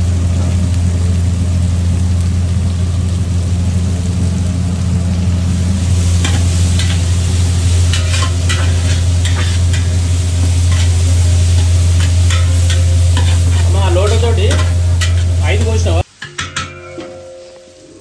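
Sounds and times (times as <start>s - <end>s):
steady low hum: 0.0s - 16.0s
onions sizzling in oil: 0.0s - 18.0s
spoon scraping a pot: 7.9s - 9.9s, 11.6s - 15.4s.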